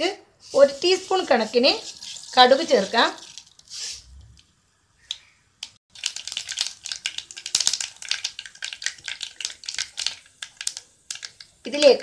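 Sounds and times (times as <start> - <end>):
mustard seeds popping in oil: 5.0 - 12.0.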